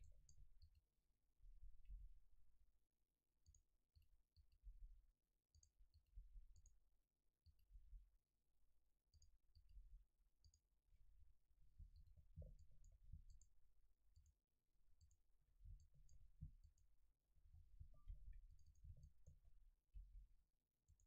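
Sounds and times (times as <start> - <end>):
computer mouse clicks: 3.4 - 3.6, 5.5 - 5.8, 10.4 - 10.6, 11.9 - 13.5, 15.0 - 15.2, 17.8 - 19.4.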